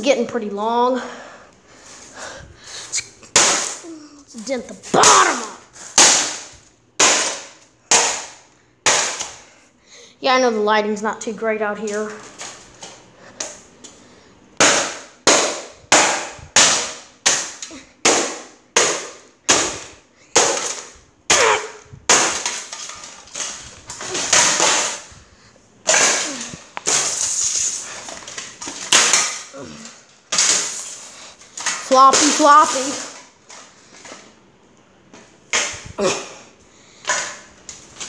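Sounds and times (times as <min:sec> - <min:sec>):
fan cracking on concrete: 0:14.6 - 0:25.2, 0:25.8 - 0:34.2.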